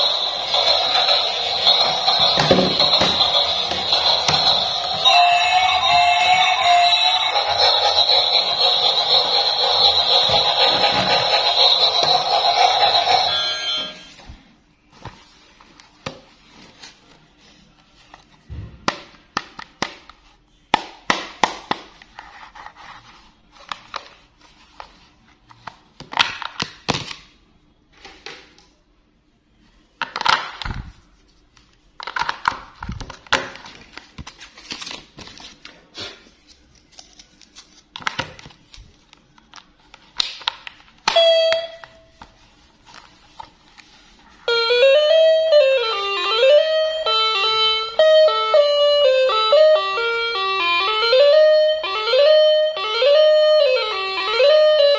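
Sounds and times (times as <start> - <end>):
toy playing electronic tune: 0.0 - 14.2, 41.1 - 42.1, 44.5 - 54.9.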